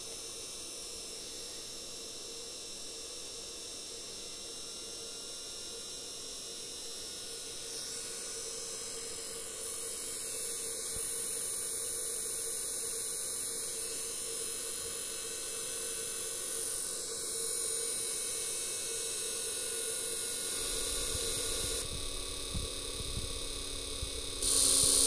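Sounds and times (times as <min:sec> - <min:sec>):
electric motor humming: 0:19.7 - 0:25.0.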